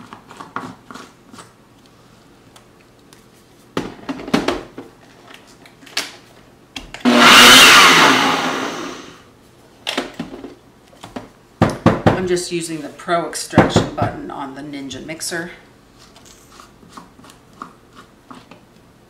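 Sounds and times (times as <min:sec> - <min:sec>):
blender motor whine: 0:07.0 - 0:09.2.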